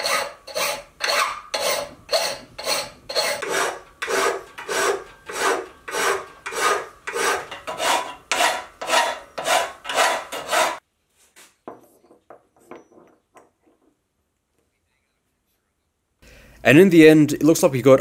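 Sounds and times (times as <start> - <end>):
hand file rasping on metal: 0.0 - 10.8.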